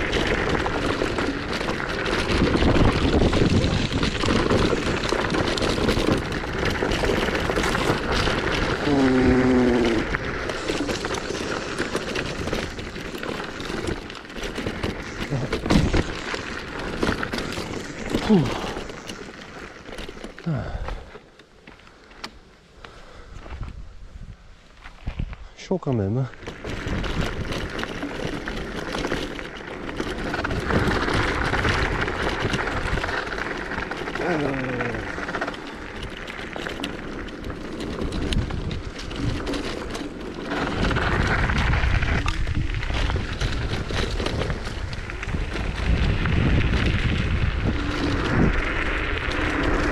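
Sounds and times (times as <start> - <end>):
wind noise: 0.0 - 19.7, 23.2 - 25.6, 26.4 - 49.9
tyres rumbling on dirt: 0.0 - 22.2, 24.9 - 49.9
small clicks and rattles: 0.0 - 22.4, 26.3 - 49.9
wind on microphone: 40.5 - 49.9.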